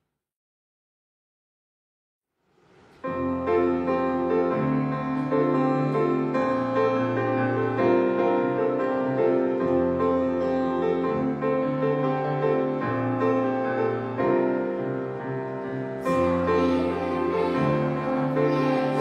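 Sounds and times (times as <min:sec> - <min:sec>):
keyboard chords: 0:03.1 - 0:19.0.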